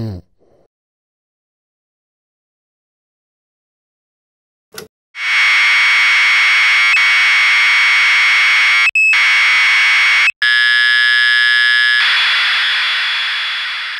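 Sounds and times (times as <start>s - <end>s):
clock radio alarm buzzing: 5.2s - 13.9s.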